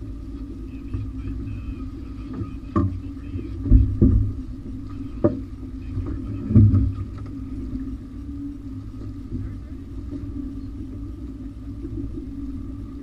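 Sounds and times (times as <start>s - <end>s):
outboard motor running: 0.0s - 13.0s
knocks and thumps on boat: 0.7s - 8.0s.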